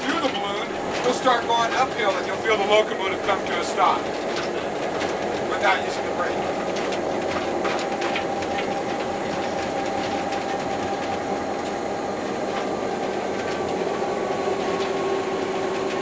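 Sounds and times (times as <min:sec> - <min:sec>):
locomotive engine drone: 0:00.0 - 0:16.0.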